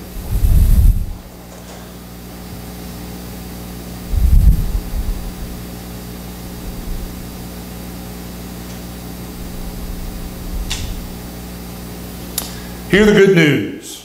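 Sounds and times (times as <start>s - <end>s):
steady mechanical hum: 0.0s - 14.0s
faint low rumble: 4.0s - 5.8s, 6.4s - 7.6s, 9.3s - 11.6s.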